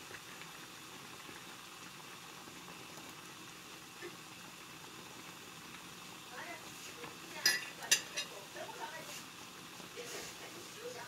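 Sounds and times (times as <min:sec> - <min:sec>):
water boiling and bubbling: 0:00.0 - 0:11.0.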